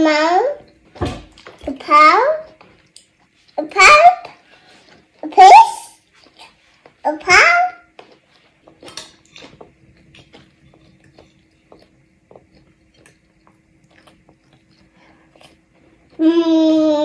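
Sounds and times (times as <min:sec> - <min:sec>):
toddler chewing: 0:06.0 - 0:07.2, 0:07.9 - 0:17.0.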